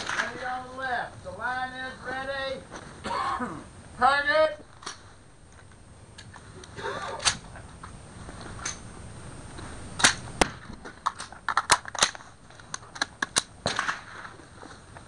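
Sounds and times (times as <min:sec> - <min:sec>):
rifle shots: 0:00.0 - 0:00.4, 0:10.0 - 0:12.2, 0:13.3 - 0:14.4.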